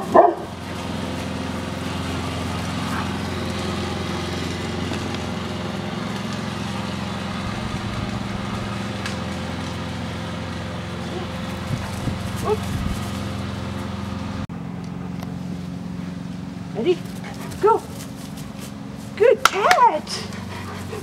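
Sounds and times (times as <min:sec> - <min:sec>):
dog barking: 0:00.0 - 0:00.6
small engine droning: 0:00.0 - 0:21.0.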